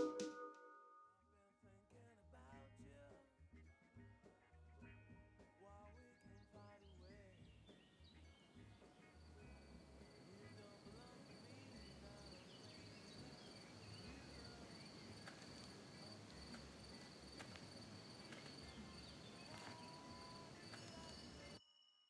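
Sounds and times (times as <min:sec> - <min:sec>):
crickets trilling: 0:09.2 - 0:22.0.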